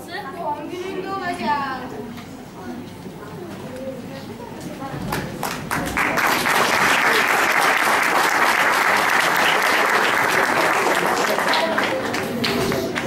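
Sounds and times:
audience applauding: 0:05.1 - 0:13.0.

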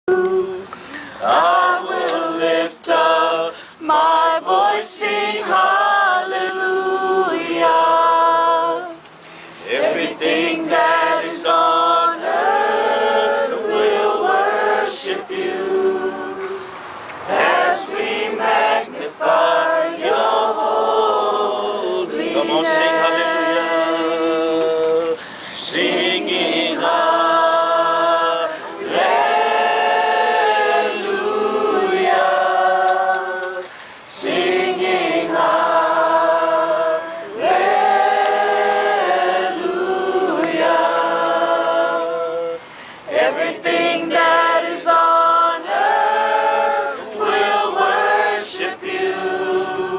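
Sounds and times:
group singing unaccompanied: 0:00.0 - 0:49.9.

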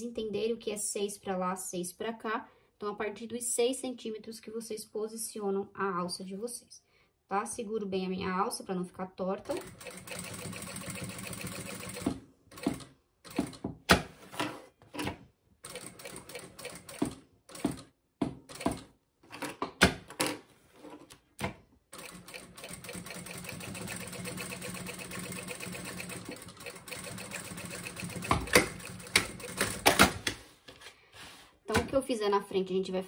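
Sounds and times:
sewing machine stitching: 0:09.5 - 0:13.6, 0:15.0 - 0:17.9, 0:18.5 - 0:19.6, 0:22.0 - 0:30.2.

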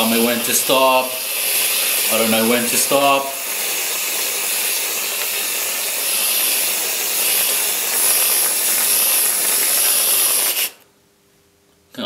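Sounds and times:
aerosol cream can hissing: 0:00.0 - 0:10.8.

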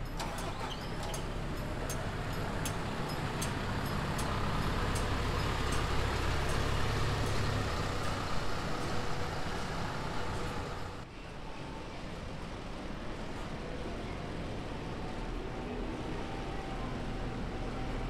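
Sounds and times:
bus diesel engine rumble: 0:00.0 - 0:18.0.

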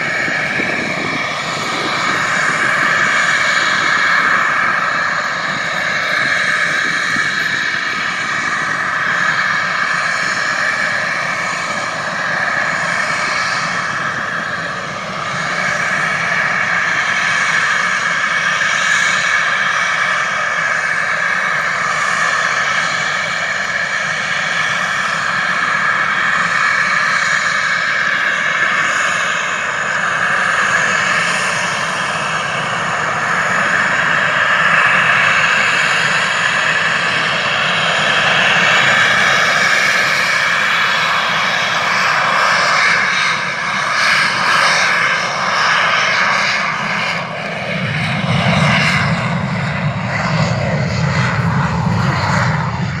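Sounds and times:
deep heavy rumble: 0:00.0 - 0:15.4
jet engine whine and rumble: 0:00.0 - 0:53.0.

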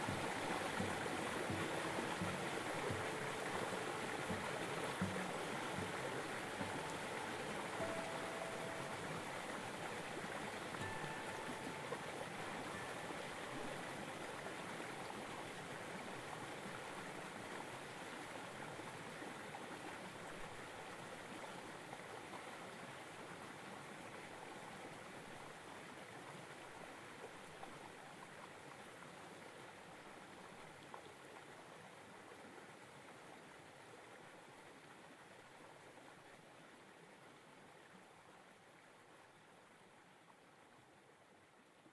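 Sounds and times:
running water rushing: 0:00.0 - 0:39.2
faint high tones: 0:06.6 - 0:09.7.

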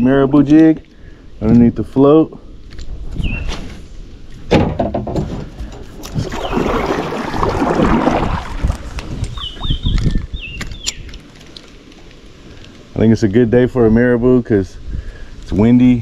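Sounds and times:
wind rumbling on microphone: 0:02.6 - 0:16.0
water sloshing around kayak: 0:05.7 - 0:10.4
bird chirping: 0:09.3 - 0:11.2.

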